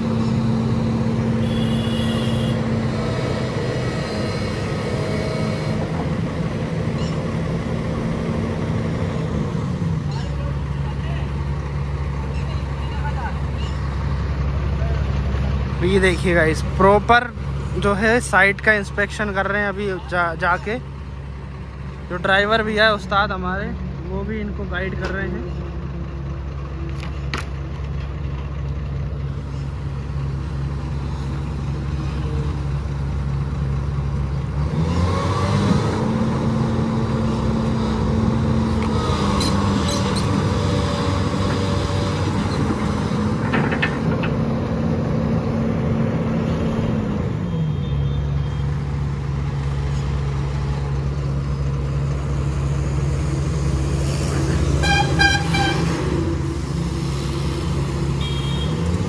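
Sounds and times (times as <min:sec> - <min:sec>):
excavator diesel engine: 0:00.0 - 0:59.0
vehicle horn toot: 0:01.4 - 0:02.7, 0:47.5 - 0:48.7, 0:54.8 - 0:56.0, 0:58.2 - 0:58.8.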